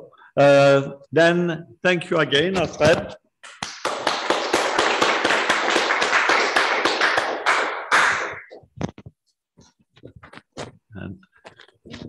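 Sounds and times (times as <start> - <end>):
audience applauding: 3.6 - 8.5.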